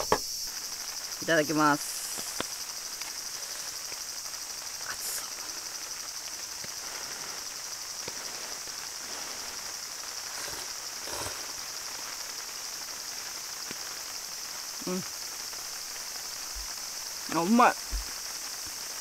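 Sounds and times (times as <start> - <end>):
insects droning: 0.0 - 19.0
slurping noodles: 6.8 - 11.7.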